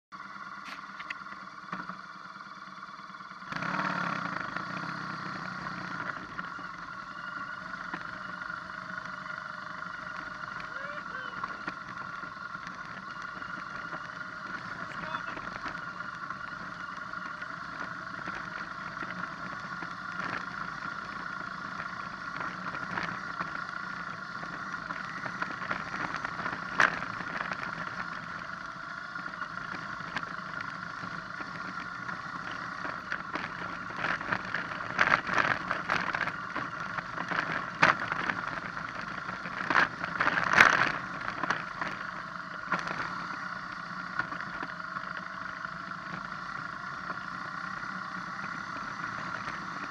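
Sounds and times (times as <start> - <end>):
motorcycle engine running: 0.0 - 49.9
knocks and rattles over rocks: 29.4 - 43.4.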